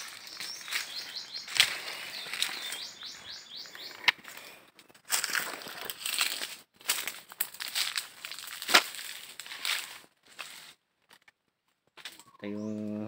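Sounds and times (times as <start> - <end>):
leaves and twigs crunching underfoot: 0.0 - 11.2
twig snapping: 5.4 - 9.5.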